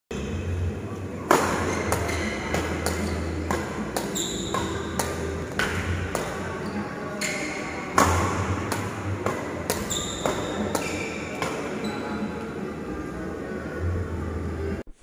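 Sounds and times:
racket hitting shuttlecocks: 0:01.2 - 0:11.8
shoes squeaking on court: 0:01.4 - 0:12.6.

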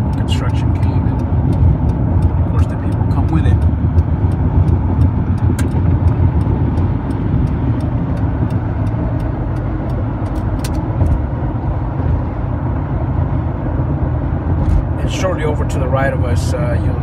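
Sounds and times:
light ticking: 0:00.0 - 0:10.8
car tyre and engine noise: 0:00.0 - 0:17.0.

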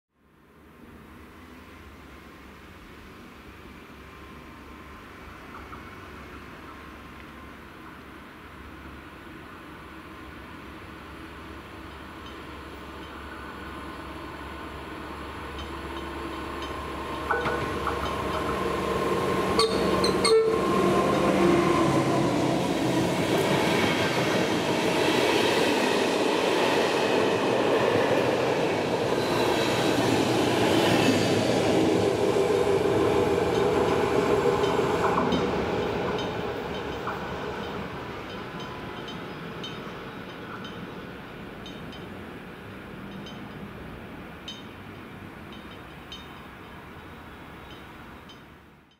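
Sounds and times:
train wheels rolling on rails: 0:02.8 - 0:48.9
train horn: 0:19.5 - 0:22.2.

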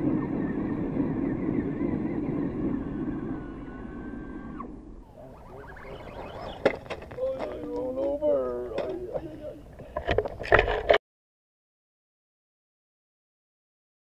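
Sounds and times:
dense low noise: 0:00.0 - 0:10.0
person speaking: 0:05.1 - 0:10.0.

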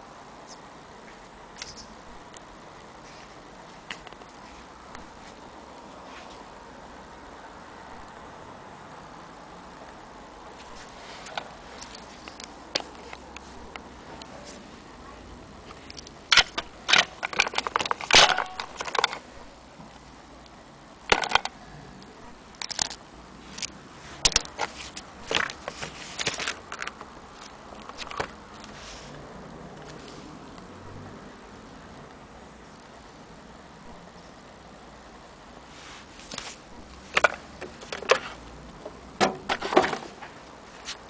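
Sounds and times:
plastic parts clicking and rattling: 0:15.9 - 0:19.3, 0:21.1 - 0:21.6, 0:22.6 - 0:28.7, 0:37.1 - 0:38.4.

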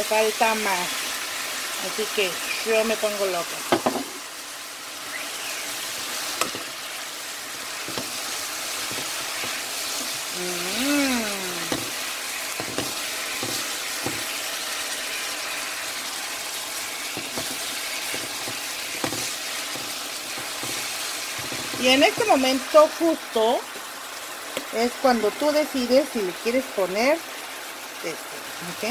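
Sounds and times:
food sizzling in frying pan: 0:00.0 - 0:28.9
person humming: 0:10.3 - 0:11.9
spatula scraping pan: 0:11.6 - 0:15.2, 0:16.9 - 0:22.5.

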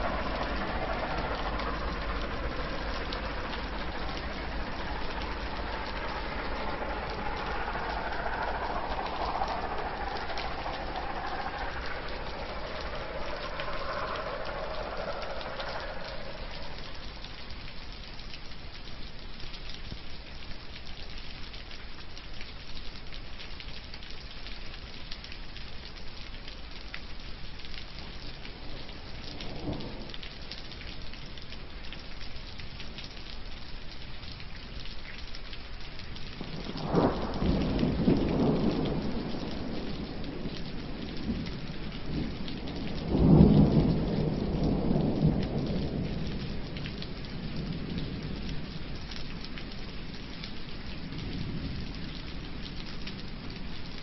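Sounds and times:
pitched hum: 0:00.0 - 0:17.6
rain falling: 0:00.0 - 0:54.0.

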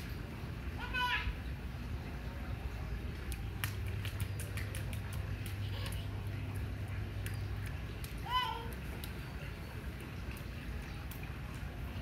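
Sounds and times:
bare feet splashing in puddles: 0:03.0 - 0:12.0.

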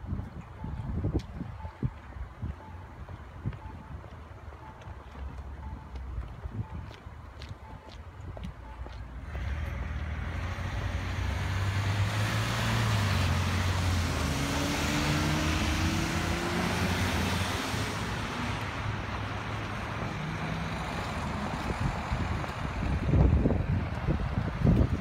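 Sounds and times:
cars driving past: 0:09.1 - 0:25.0
car accelerating: 0:09.3 - 0:22.2.

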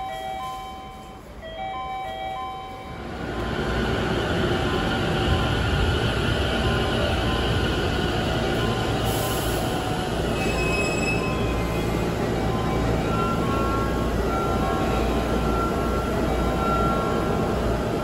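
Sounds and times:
train rumbling and braking: 0:00.0 - 0:18.0
high brake squealing: 0:10.3 - 0:12.0.

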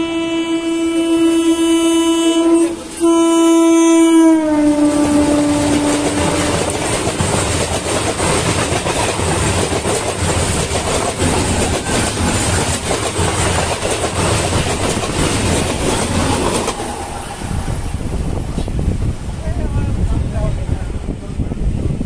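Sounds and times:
train horn: 0:00.0 - 0:06.9
deep train rumble: 0:00.0 - 0:22.0
train wheels clickety-clack: 0:04.7 - 0:17.6.

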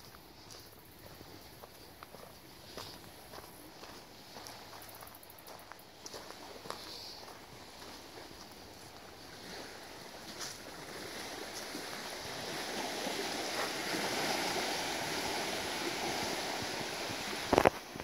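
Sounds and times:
small waves washing on shore: 0:06.0 - 0:18.0.

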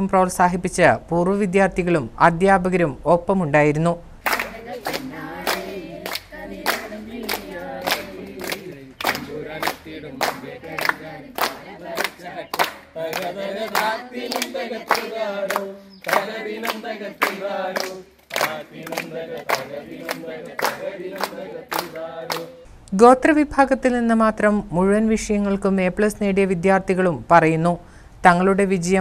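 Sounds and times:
hand claps: 0:04.2 - 0:22.6
group of voices singing: 0:04.3 - 0:22.7.

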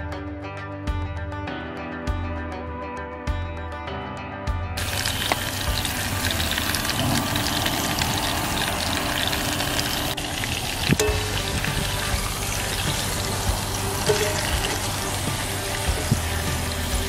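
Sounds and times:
meat sizzling in oil: 0:04.8 - 0:17.0
metal tongs clacking: 0:14.1 - 0:14.8.

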